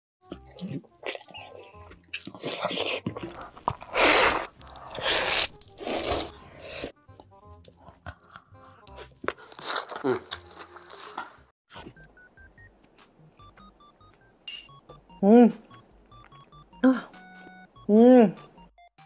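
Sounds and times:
background music: 0:00.2 - 0:19.0
crunching and chewing: 0:00.3 - 0:11.9.

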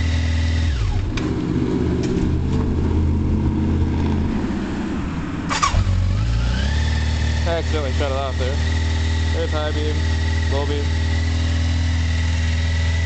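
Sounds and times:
low uneven engine sound: 0:00.0 - 0:13.0
motorcycle engine idling: 0:07.0 - 0:13.0.

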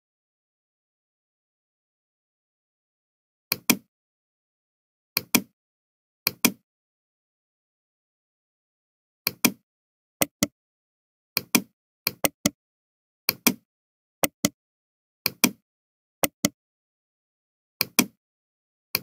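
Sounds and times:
computer mouse clicking: 0:03.5 - 0:03.9, 0:05.2 - 0:05.5, 0:06.3 - 0:06.6, 0:09.3 - 0:09.6, 0:11.4 - 0:12.6, 0:13.3 - 0:13.6, 0:14.2 - 0:14.6, 0:15.3 - 0:15.6, 0:16.2 - 0:16.6, 0:17.8 - 0:18.2.

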